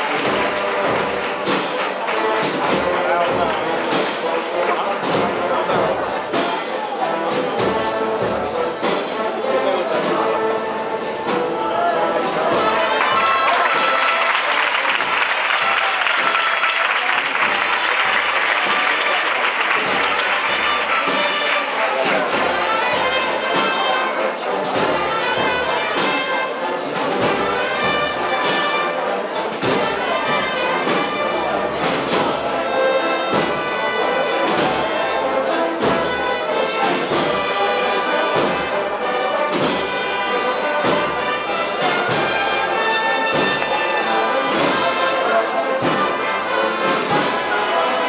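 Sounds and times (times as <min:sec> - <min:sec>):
brass band playing a march: 0:00.0 - 0:48.0
steady drum beat: 0:00.0 - 0:48.0.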